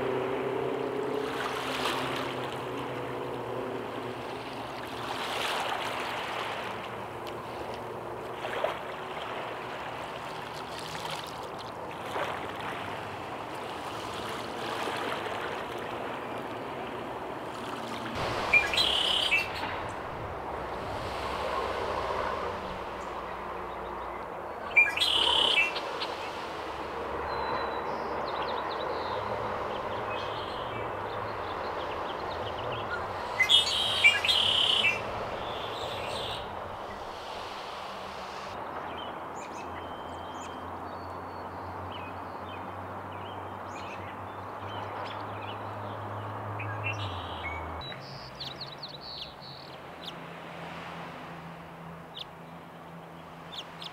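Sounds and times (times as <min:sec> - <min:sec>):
hiss of moving air or water: 0:18.1 - 0:23.7, 0:33.0 - 0:38.6
blackbird singing: 0:18.5 - 0:19.7, 0:23.8 - 0:25.8, 0:32.2 - 0:37.0, 0:46.6 - 0:50.1.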